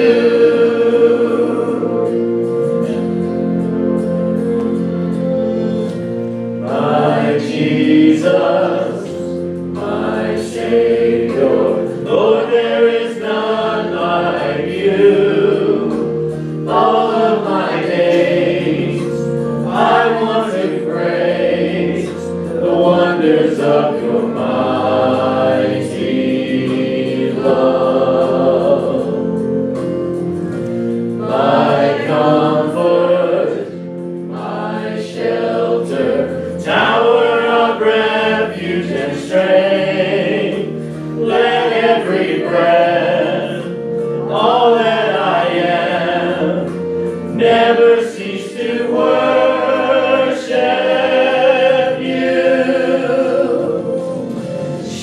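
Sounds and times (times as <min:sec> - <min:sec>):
group of voices singing: 0:00.0 - 0:55.0
sustained instrumental accompaniment: 0:00.0 - 0:55.0.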